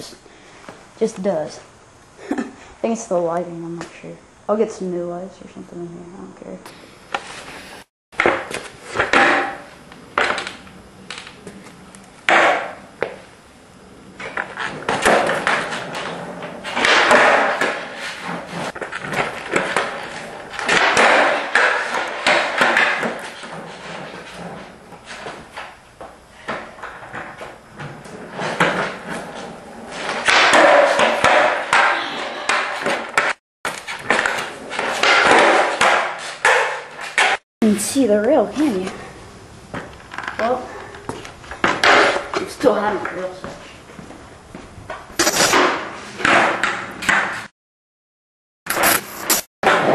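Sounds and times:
skateboard hitting hard floor: 0:08.2 - 0:13.3, 0:14.1 - 0:37.4, 0:41.1 - 0:43.2, 0:44.9 - 0:47.5, 0:48.7 - 0:49.9
skateboard clacks and knocks: 0:14.2 - 0:24.2, 0:29.9 - 0:33.4, 0:34.0 - 0:37.4.

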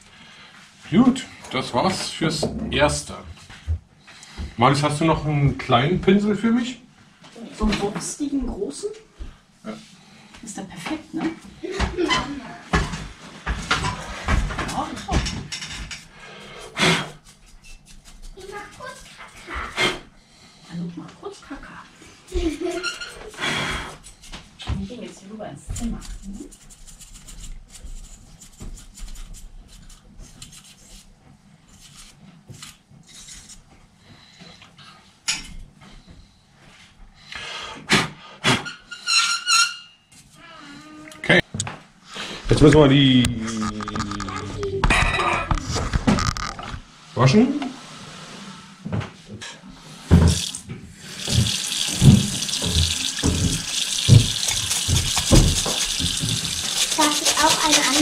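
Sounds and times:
brush scrubbing glass: 0:25.9 - 0:32.2, 0:51.2 - 0:58.0
paintbrush scratchy strokes: 0:26.0 - 0:31.1, 0:54.4 - 0:58.0
tap running into sink: 0:50.1 - 0:57.8.

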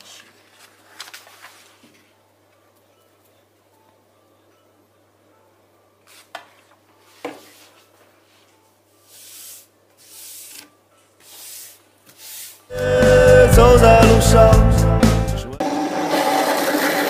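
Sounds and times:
hands rubbing paper on board: 0:09.1 - 0:10.6, 0:11.2 - 0:12.6.

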